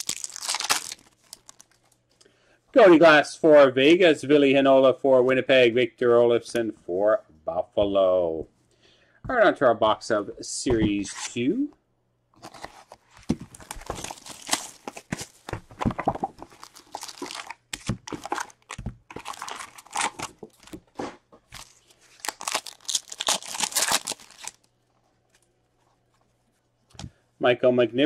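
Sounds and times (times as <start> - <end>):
plastic wrapping crinkling and tearing: 0.0 - 2.0, 12.4 - 20.8, 21.5 - 24.7.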